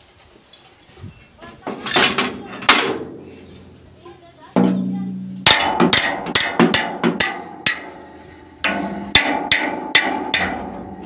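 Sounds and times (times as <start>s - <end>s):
sharp ringing knocks: 4.6s - 11.0s.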